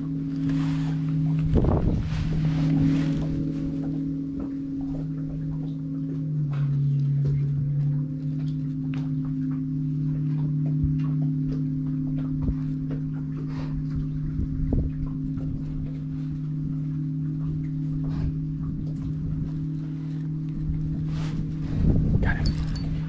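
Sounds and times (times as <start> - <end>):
electric trolling motor humming: 0.0 - 23.0.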